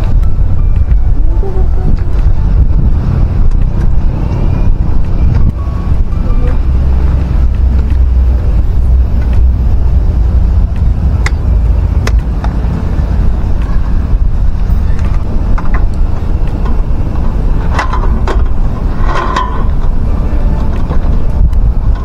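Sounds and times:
steady low rumble: 0.0s - 22.0s
metallic clacks and rattles: 13.5s - 22.0s.

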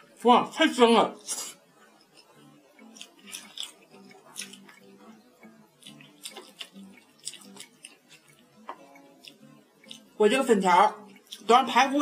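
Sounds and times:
wet chewing and mouth smacks: 2.0s - 10.1s, 11.0s - 11.5s.

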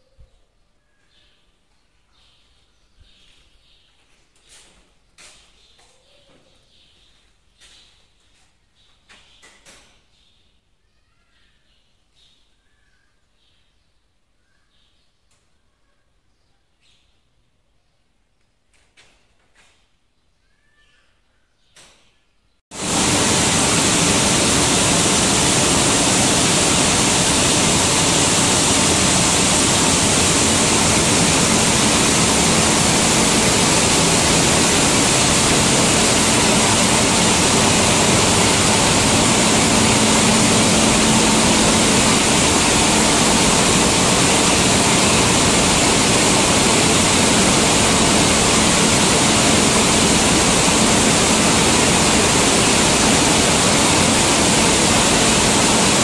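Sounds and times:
milling machine rushing noise: 22.7s - 56.0s.

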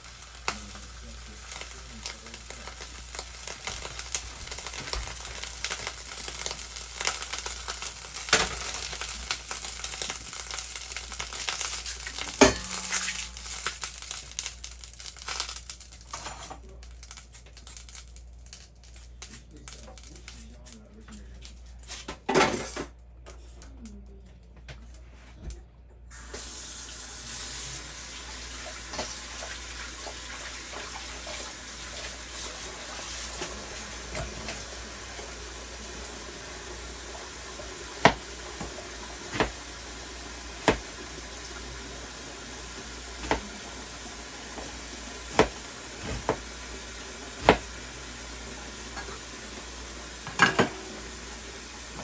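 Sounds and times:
steady hiss: 0.0s - 15.5s, 26.1s - 52.0s
knife chopping on cutting board: 38.0s - 39.6s, 40.6s - 40.9s, 43.2s - 43.5s, 45.3s - 46.5s, 47.4s - 47.7s.

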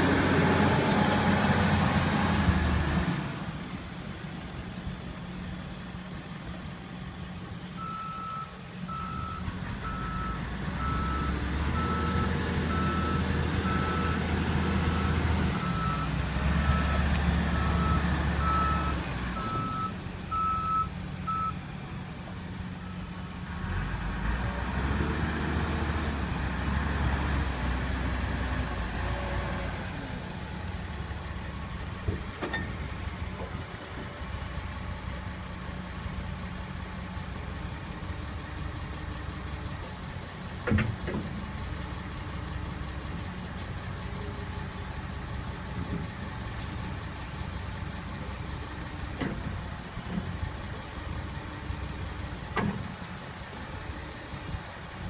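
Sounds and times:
diesel engine revving: 0.0s - 55.0s.

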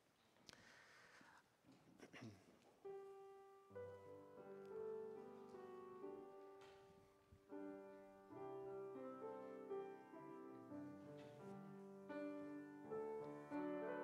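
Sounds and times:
soft slow piano music: 2.8s - 14.0s.

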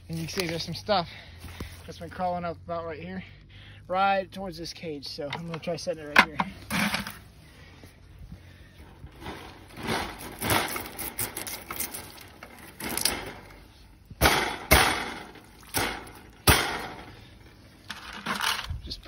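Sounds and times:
wire-mesh cage rattling and clanking: 9.1s - 17.2s.

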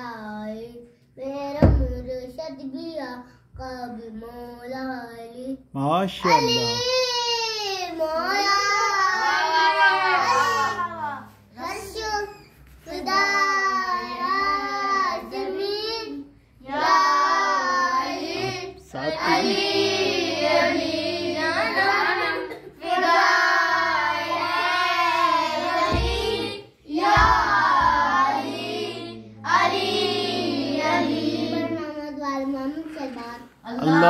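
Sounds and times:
boy singing: 11.8s - 32.2s.

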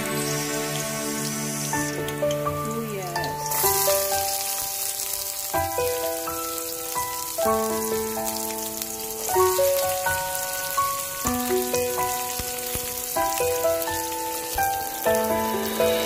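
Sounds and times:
background music with sustained chords: 0.0s - 5.4s, 11.2s - 16.0s
onion sizzling in oil: 0.0s - 16.0s.

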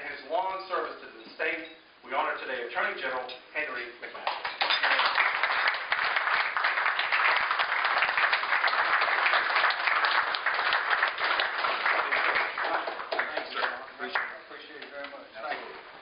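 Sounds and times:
crowd applauding: 4.3s - 14.4s.

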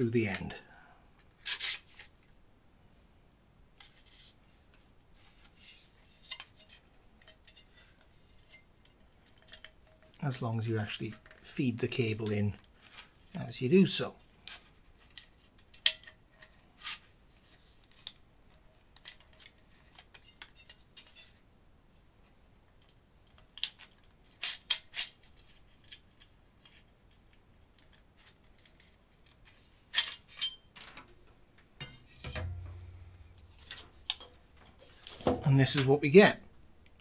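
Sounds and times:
plastic sliding and scraping on metal: 27.8s - 35.8s.

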